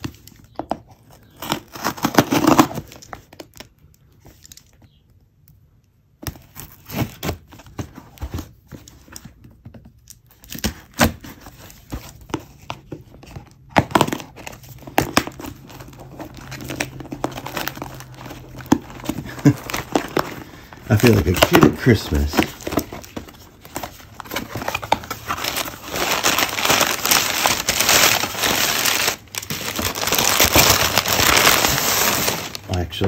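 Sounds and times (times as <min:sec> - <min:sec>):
cardboard crinkling and scraping: 0:00.0 - 0:03.6, 0:06.2 - 0:33.0
packing tape ripping off box: 0:01.3 - 0:03.6, 0:06.3 - 0:08.0, 0:10.3 - 0:11.7, 0:13.7 - 0:32.7.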